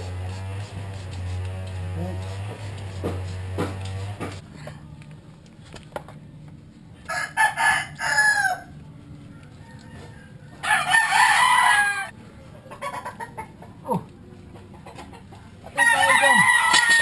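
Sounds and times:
rooster crowing: 7.1s - 8.7s, 9.6s - 12.1s, 15.8s - 17.0s.

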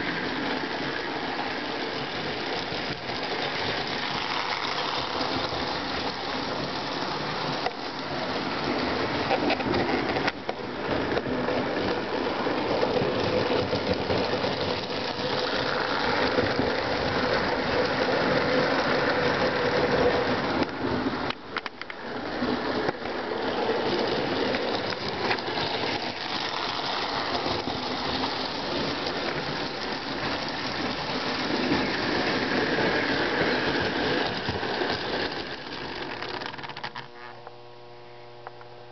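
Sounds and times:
wheels rattling over rails: 0.0s - 37.2s
toy train motor whirring: 0.2s - 12.0s, 12.6s - 20.4s, 22.8s - 37.2s.

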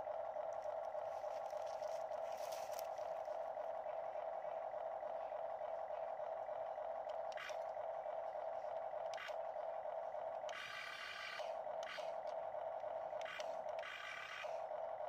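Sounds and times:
small electric motors whining: 0.0s - 15.0s
click: 7.1s - 7.7s, 11.8s - 12.4s, 13.2s - 13.9s
higher buzzy motor: 7.3s - 12.4s.

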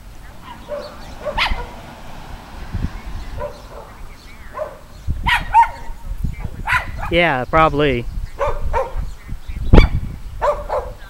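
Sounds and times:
small dog yapping: 0.4s - 1.8s, 3.4s - 6.0s, 6.6s - 7.1s, 8.4s - 9.1s, 9.8s - 11.0s.

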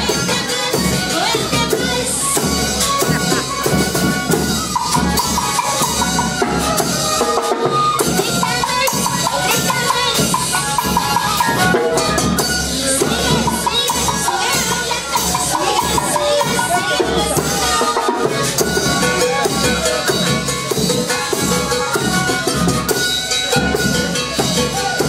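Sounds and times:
drums beating: 0.0s - 25.0s
flutes playing high melody: 0.0s - 25.0s.

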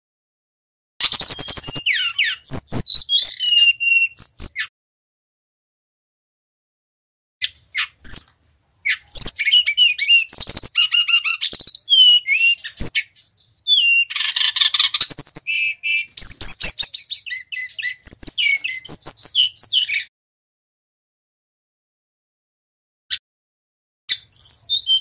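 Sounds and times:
bird singing whistles and trills: 1.0s - 4.7s, 7.4s - 20.1s, 24.1s - 25.0s.

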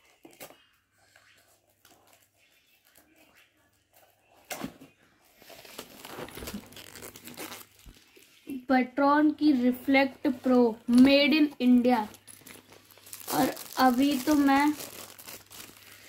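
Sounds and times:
wrapping tearing and crinkling: 5.3s - 8.5s, 11.6s - 16.0s.

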